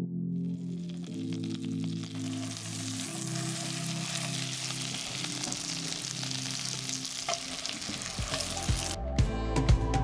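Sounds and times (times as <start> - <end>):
liquid pouring: 0.5 - 8.9
vegetables sizzling in a pot: 0.5 - 9.0
wooden spatula stirring: 1.0 - 9.0.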